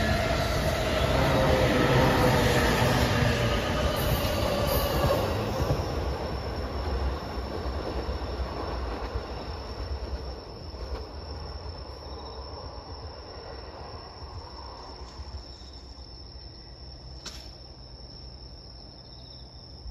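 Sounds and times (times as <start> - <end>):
electric train rumbling: 0.0 - 19.0
insects chirring: 0.0 - 19.9
sharp click: 17.2 - 17.6.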